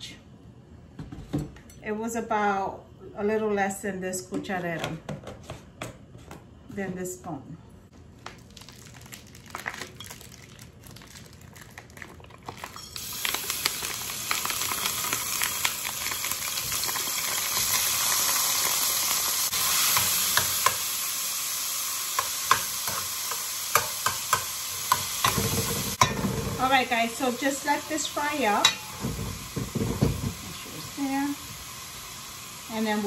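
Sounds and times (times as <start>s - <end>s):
ham sizzling in oil: 8.3s - 33.0s.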